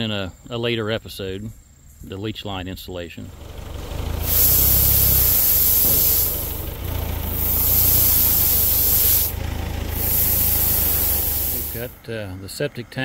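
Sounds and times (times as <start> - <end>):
loader engine running: 2.8 - 12.1
gravel pouring hiss: 3.5 - 12.0.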